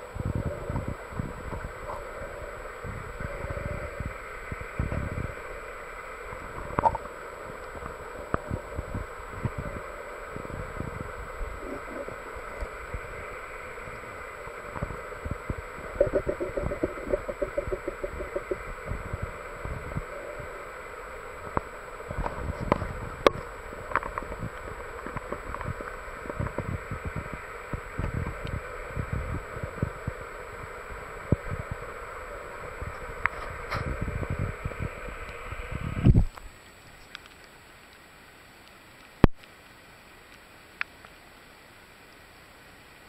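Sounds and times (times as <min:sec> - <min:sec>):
steady underwater hiss: 0:00.0 - 0:43.0
underwater low thumps and knocks: 0:14.8 - 0:20.0.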